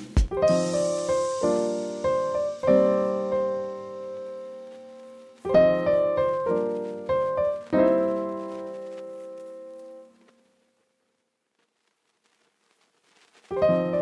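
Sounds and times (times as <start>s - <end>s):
piano chords: 0.0s - 10.3s, 13.6s - 14.0s.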